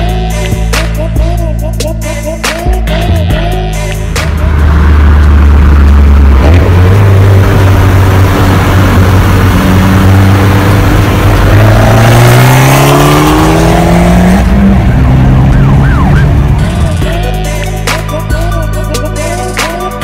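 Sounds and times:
car exhaust accelerating: 3.4 - 17.4
wind and road noise: 4.3 - 17.1.

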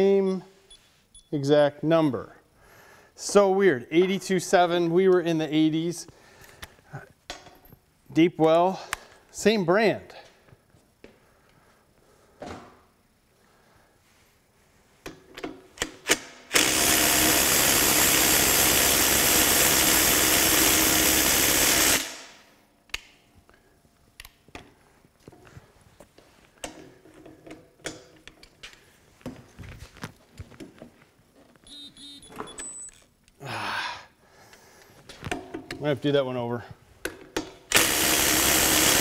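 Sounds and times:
short high beep: 0.7 - 1.4, 31.7 - 33.0
tools clicking and knocking: 15.0 - 16.6, 26.6 - 29.4, 37.0 - 37.8.

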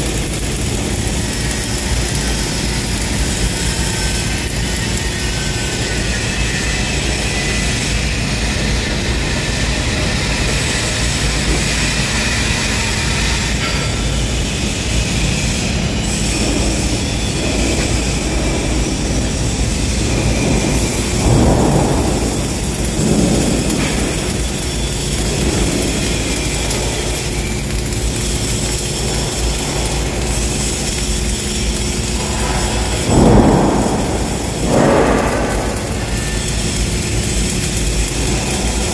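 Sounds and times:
welding arc crackling: 0.0 - 38.9
steady low rumble: 15.6 - 38.9.

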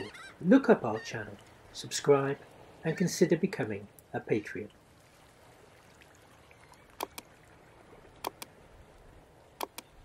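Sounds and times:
faint steady hiss: 0.0 - 10.0
computer mouse double clicks: 7.0 - 7.2, 8.2 - 8.5, 9.6 - 9.9.

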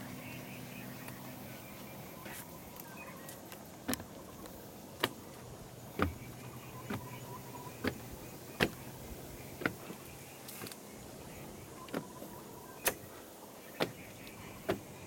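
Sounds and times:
footsteps on wooden stairs: 3.5 - 10.8, 13.7 - 15.0.

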